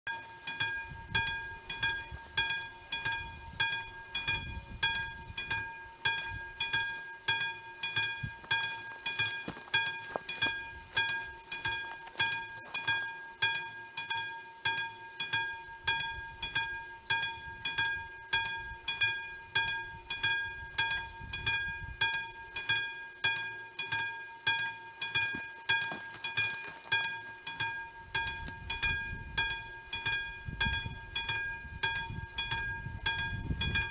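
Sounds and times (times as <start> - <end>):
level crossing bell ringing: 0.1 - 15.4, 22.1 - 33.9.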